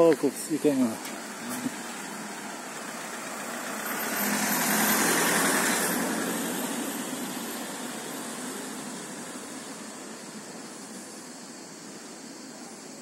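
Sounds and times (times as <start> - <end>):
car driving past: 1.1 - 9.9.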